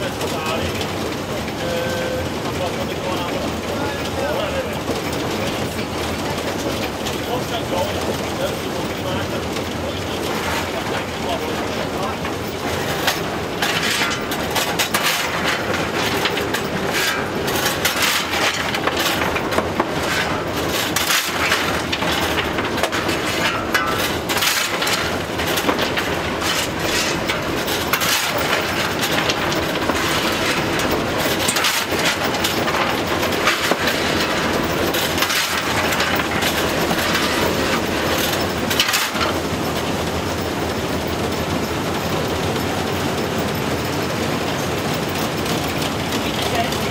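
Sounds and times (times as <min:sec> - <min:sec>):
steam locomotive rumble and clatter: 0:00.0 - 0:46.9.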